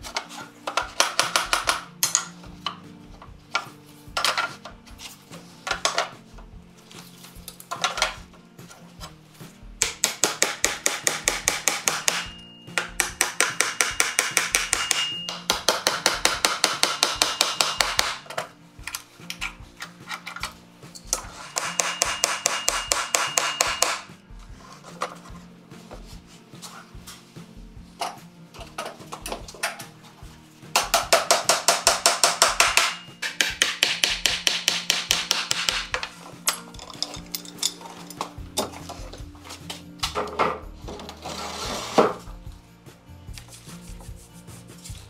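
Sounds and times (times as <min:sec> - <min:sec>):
hammer nailing wood: 0:00.8 - 0:01.9, 0:09.8 - 0:18.2, 0:21.6 - 0:24.1, 0:30.8 - 0:36.1.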